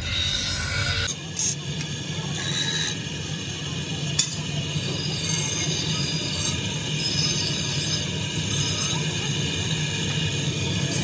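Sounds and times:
bench grinder motor humming: 0:00.0 - 0:01.2.

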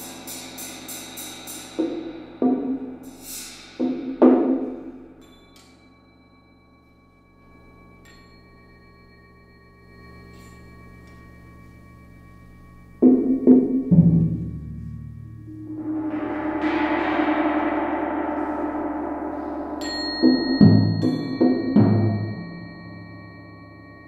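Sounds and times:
gong ringing: 0:12.5 - 0:24.0
tuned drum strikes: 0:13.0 - 0:23.2
bright metallic strike: 0:13.0 - 0:24.0.

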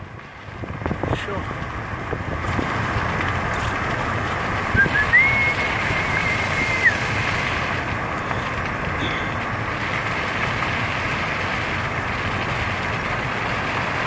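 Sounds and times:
car road and wind noise: 0:00.0 - 0:14.0.

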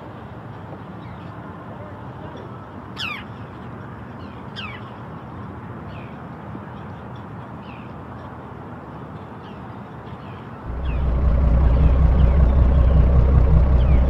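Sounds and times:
birds calling: 0:10.7 - 0:14.0
low rumble: 0:10.7 - 0:14.0.

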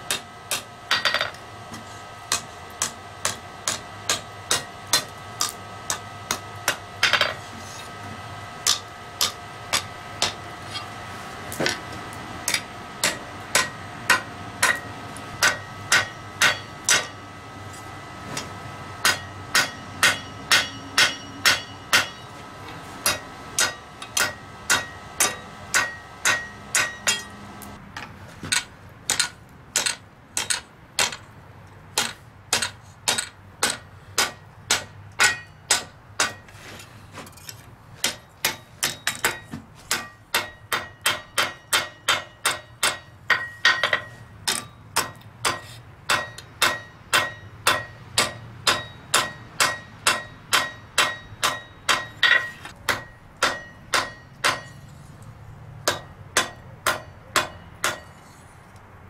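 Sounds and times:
hammer striking metal on anvil: 0:00.0 - 0:01.4, 0:02.3 - 0:07.4, 0:08.6 - 0:10.9, 0:11.5 - 0:17.2, 0:18.4 - 0:22.4, 0:23.0 - 0:27.8, 0:28.5 - 0:31.2, 0:32.0 - 0:36.5, 0:38.0 - 0:55.0, 0:55.8 - 0:58.4
anvil ringing: 0:12.5 - 0:17.2, 0:19.0 - 0:22.4, 0:23.0 - 0:27.5, 0:32.0 - 0:36.4, 0:38.1 - 0:54.9, 0:55.8 - 0:58.2.

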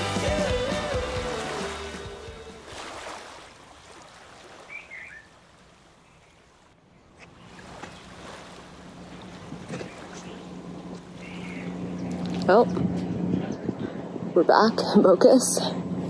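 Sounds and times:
soft water-like noise: 0:01.4 - 0:11.5
low steady hum: 0:06.5 - 0:16.0.

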